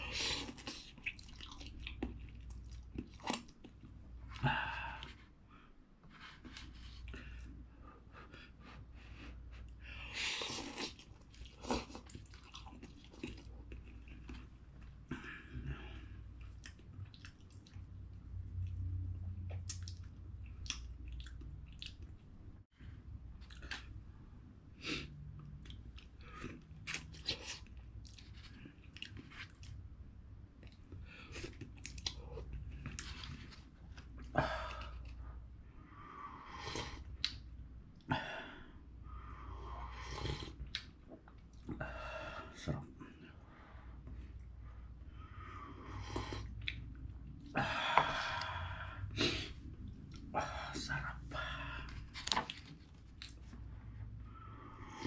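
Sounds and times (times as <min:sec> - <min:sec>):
person chewing noodles: 0:00.0 - 0:05.2, 0:09.2 - 0:17.9, 0:19.5 - 0:22.2, 0:23.4 - 0:23.9, 0:24.9 - 0:29.8, 0:30.6 - 0:35.2, 0:39.6 - 0:41.8.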